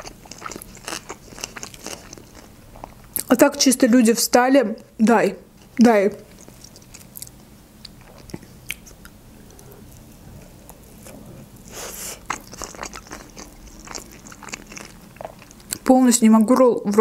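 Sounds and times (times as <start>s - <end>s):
chewing with small clicks: 0.0s - 3.3s, 6.3s - 11.2s, 12.3s - 17.0s.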